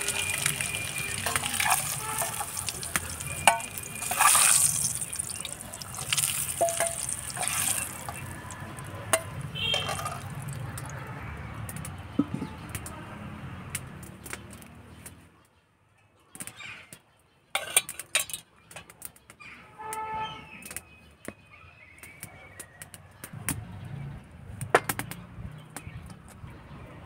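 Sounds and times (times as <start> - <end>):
oil sizzling in pan: 0.0 - 8.9
metal skimmer scraping pan: 0.0 - 10.5.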